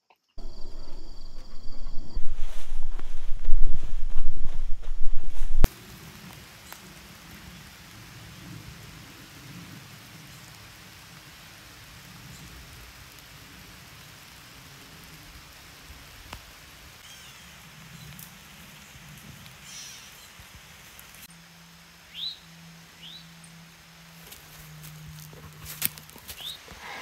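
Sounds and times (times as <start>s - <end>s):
faint bird chirps: 0.1s - 3.0s
low rumble: 0.4s - 5.7s
outdoor background hiss: 0.4s - 27.0s.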